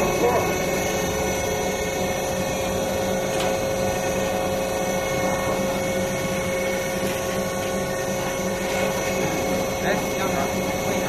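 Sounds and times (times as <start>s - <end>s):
high machine whine: 0.0s - 11.0s
machinery hum: 0.0s - 11.0s.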